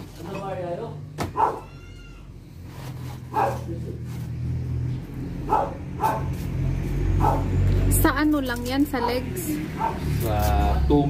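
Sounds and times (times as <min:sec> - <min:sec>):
short yelps: 0:01.3 - 0:02.2
dog whining: 0:01.3 - 0:02.3.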